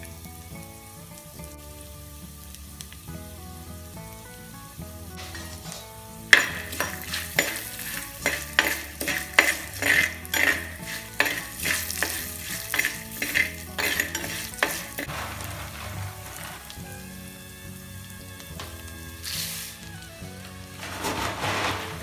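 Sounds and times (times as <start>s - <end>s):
food frying in oil: 0.0s - 20.8s
spatula scraping a clay pot: 5.2s - 17.0s.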